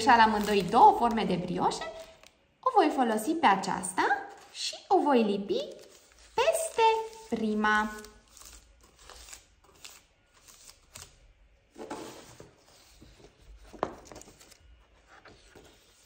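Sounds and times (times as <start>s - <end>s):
paper rustling: 5.6s - 16.0s.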